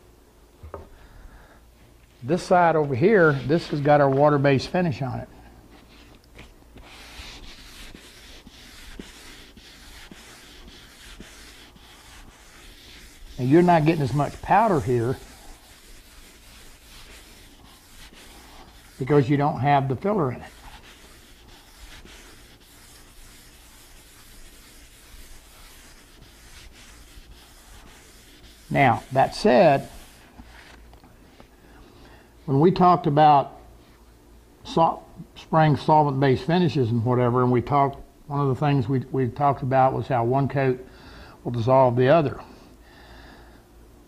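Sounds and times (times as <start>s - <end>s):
sandpaper rubbing on wood: 6.8s - 30.8s.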